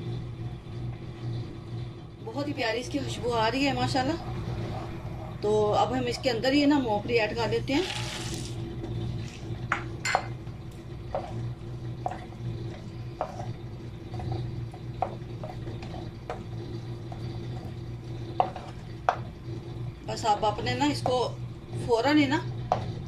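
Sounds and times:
steady low hum: 0:00.0 - 0:23.0
wooden spoon scraping a pan: 0:11.0 - 0:21.3.

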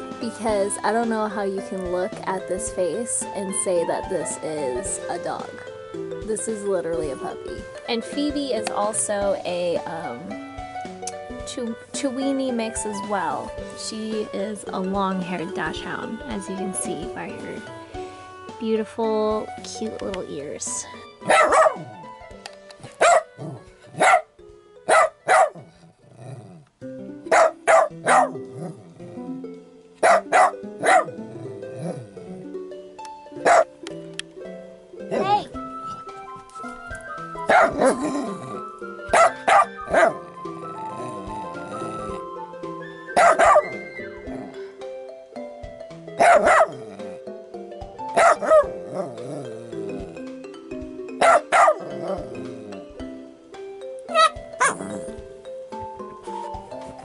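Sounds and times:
background music: 0:00.0 - 0:57.0
small dog barking: 0:21.2 - 0:22.0, 0:22.8 - 0:24.3, 0:24.9 - 0:25.6, 0:27.3 - 0:28.4, 0:30.0 - 0:31.2, 0:33.4 - 0:33.7, 0:37.5 - 0:38.0, 0:39.1 - 0:40.2, 0:43.2 - 0:43.7, 0:46.2 - 0:46.8, 0:48.1 - 0:48.8, 0:51.2 - 0:51.9, 0:54.1 - 0:54.8.

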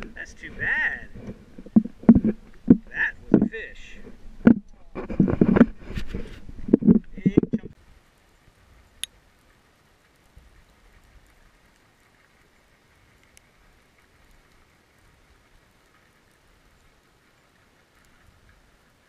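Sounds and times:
small clicks and crackles: 0:00.0 - 0:19.0.

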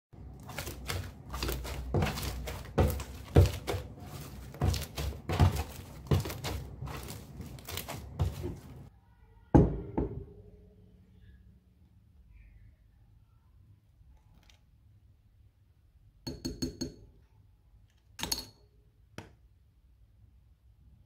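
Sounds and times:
slime squelching: 0:00.2 - 0:08.9.

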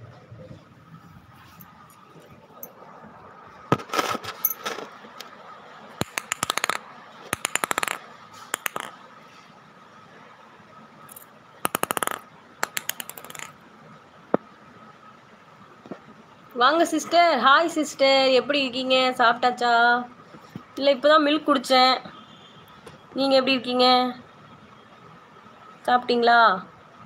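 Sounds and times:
plastic ball bouncing on tiles: 0:06.0 - 0:09.0, 0:11.6 - 0:13.6.

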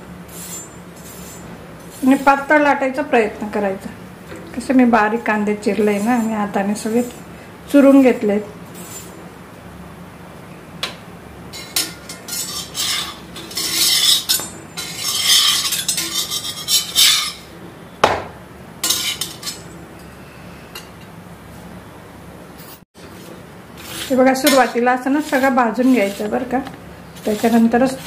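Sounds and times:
spatula scraping on griddle: 0:00.3 - 0:02.5, 0:05.6 - 0:07.2, 0:08.7 - 0:09.2, 0:11.6 - 0:17.5, 0:18.8 - 0:19.7, 0:22.6 - 0:28.0.

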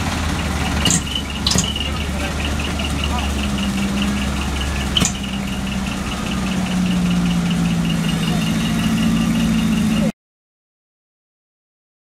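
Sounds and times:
truck engine idling: 0:00.0 - 0:10.2
sharp click: 0:00.8 - 0:01.8, 0:05.0 - 0:05.2
rapid high-pitched beeping: 0:00.8 - 0:10.1.

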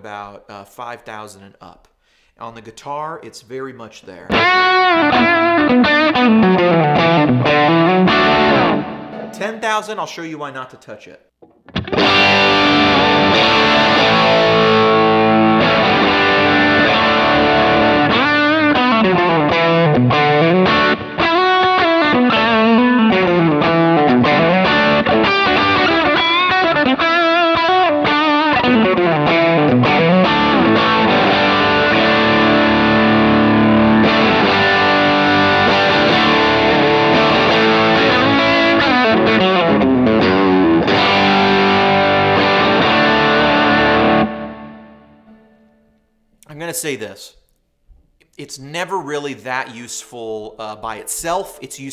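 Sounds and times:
distorted electric guitar: 0:04.3 - 0:09.6, 0:11.4 - 0:46.0.

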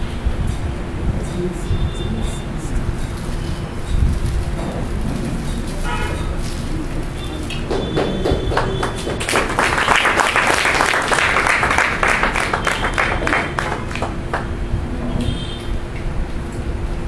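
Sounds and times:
audience applauding: 0:07.6 - 0:14.6.

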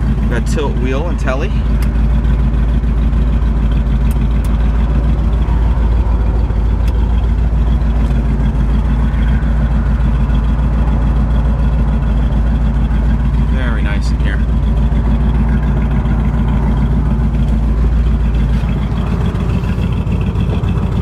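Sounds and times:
car engine idling: 0:00.0 - 0:21.0.

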